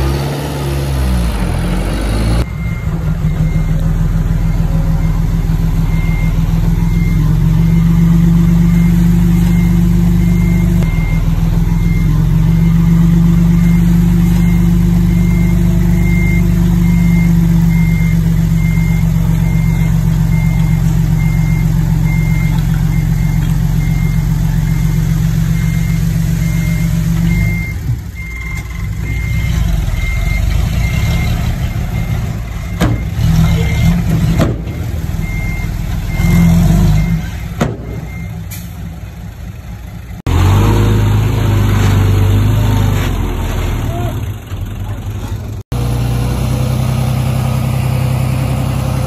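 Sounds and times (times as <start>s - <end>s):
heavy diesel machine running: 0.0s - 49.0s
backup alarm beeping: 2.4s - 38.7s.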